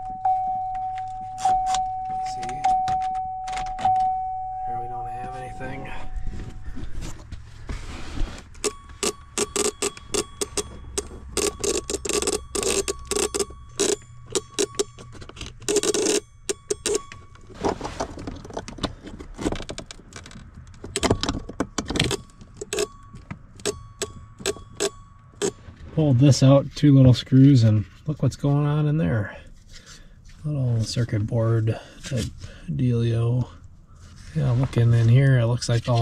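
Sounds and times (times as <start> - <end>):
low steady hum: 0.0 - 36.0
plastic parts clicking and rattling: 8.6 - 25.5.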